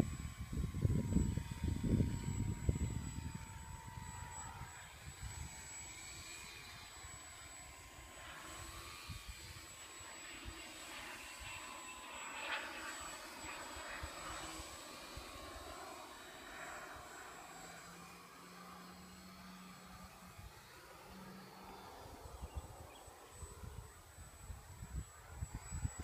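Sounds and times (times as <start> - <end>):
wind rumble on microphone: 0.0 - 5.7, 23.4 - 26.0
model plane electric motor whining: 0.0 - 26.0.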